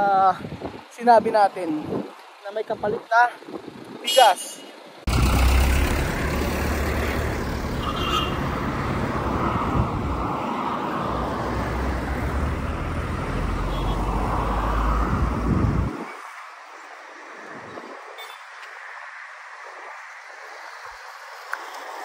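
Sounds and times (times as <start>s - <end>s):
cars driving past: 5.0s - 16.6s.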